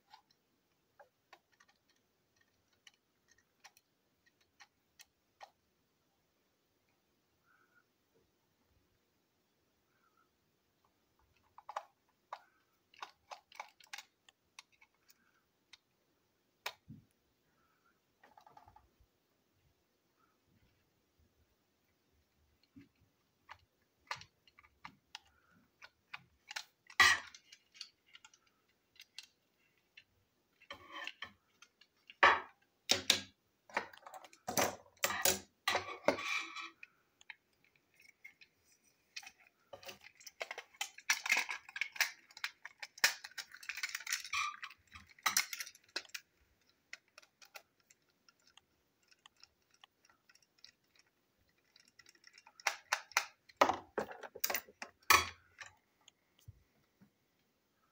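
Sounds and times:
plastic toy parts clicking and rattling: 0:00.0 - 0:05.6, 0:11.2 - 0:17.1, 0:22.6 - 0:56.5.

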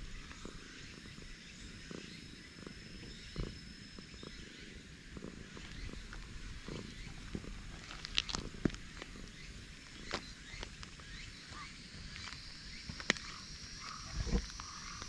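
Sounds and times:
cat purring: 0:00.0 - 0:11.2.

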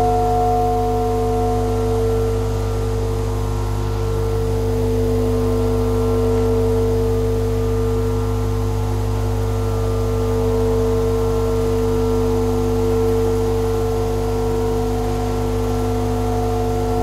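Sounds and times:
held drone tones: 0:00.0 - 0:12.1
constant low hum: 0:00.0 - 0:17.0.

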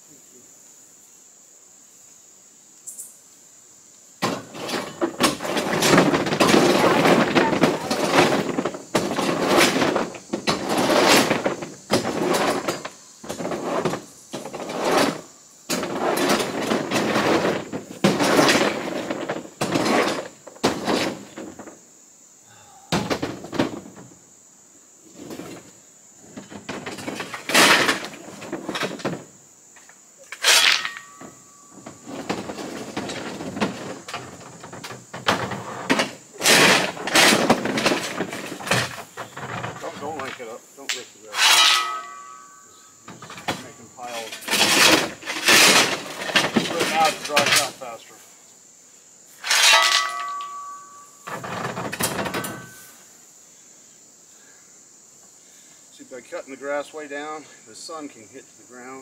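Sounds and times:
rock scraping in truck bed: 0:04.2 - 0:21.8, 0:23.0 - 0:24.2, 0:25.0 - 0:29.4, 0:30.3 - 0:40.6, 0:41.3 - 0:48.1, 0:49.3 - 0:52.9.

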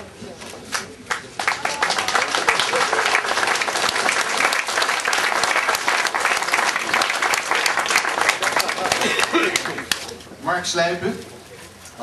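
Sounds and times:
audience applauding: 0:00.7 - 0:10.2.

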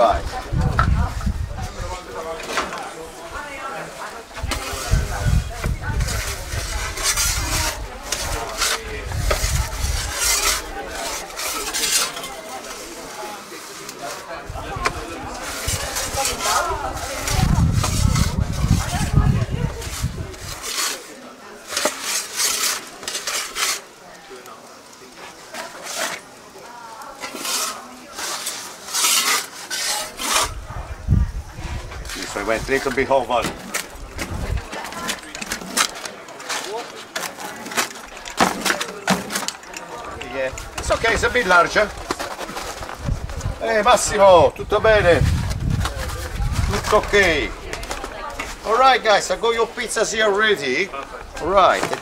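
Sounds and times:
metal peel scraping stone: 0:04.3 - 0:24.0, 0:25.5 - 0:26.4, 0:27.0 - 0:30.7, 0:31.6 - 0:44.2.

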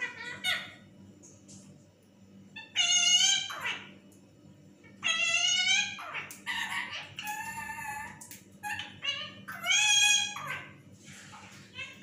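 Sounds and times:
shrill parrot calls: 0:00.0 - 0:00.8, 0:02.6 - 0:03.9, 0:05.0 - 0:10.8.

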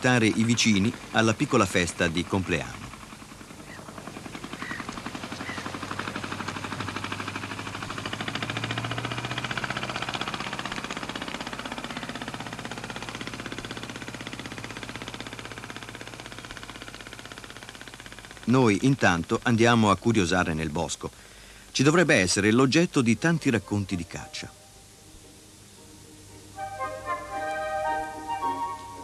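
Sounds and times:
boat engine puttering: 0:00.0 - 0:21.0.

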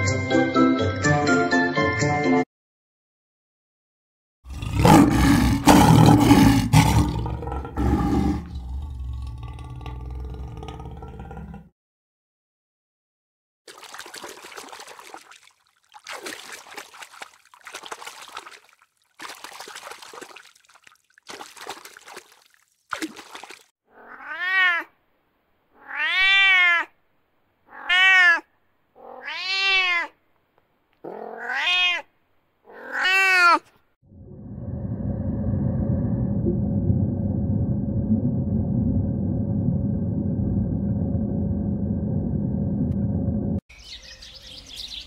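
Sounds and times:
fish splashing water: 0:13.7 - 0:23.7
cat meowing: 0:23.9 - 0:25.0, 0:25.8 - 0:27.0, 0:27.7 - 0:30.2, 0:31.0 - 0:32.1, 0:32.7 - 0:33.6.

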